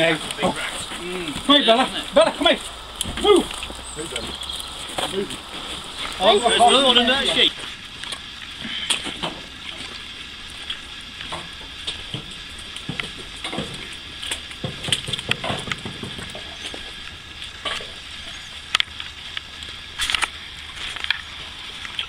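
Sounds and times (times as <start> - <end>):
footsteps in wet mud: 0.0 - 6.8
wet pattering hiss: 0.0 - 22.0.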